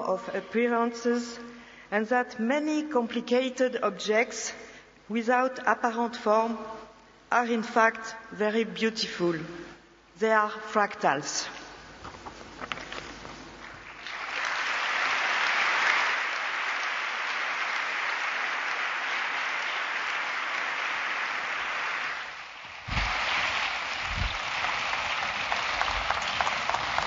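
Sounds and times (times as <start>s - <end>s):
audience applauding: 13.8s - 27.0s
low thumps: 22.9s - 23.3s.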